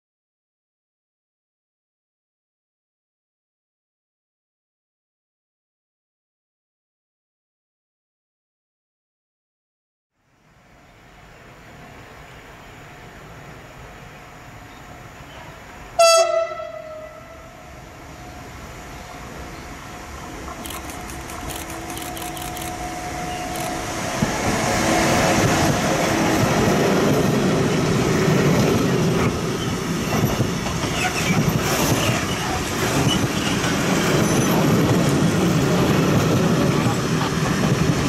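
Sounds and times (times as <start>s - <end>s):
locomotive horn blast: 16.0s - 17.7s
train wheels rumbling on rails: 18.2s - 38.0s.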